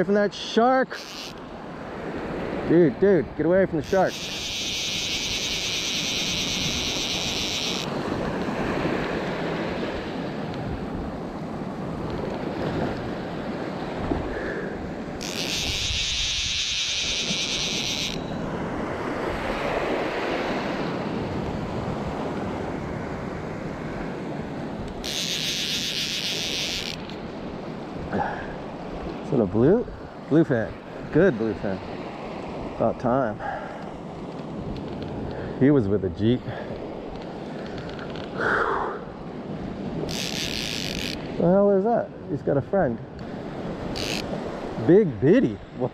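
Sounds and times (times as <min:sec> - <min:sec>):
small waves washing on sand: 0:00.0 - 0:45.9
wind buffeting microphone: 0:01.5 - 0:32.8.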